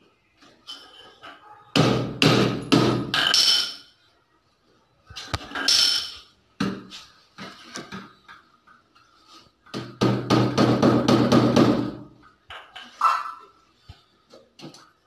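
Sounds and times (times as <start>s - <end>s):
hammer knocking on wooden door: 9.8s - 12.0s.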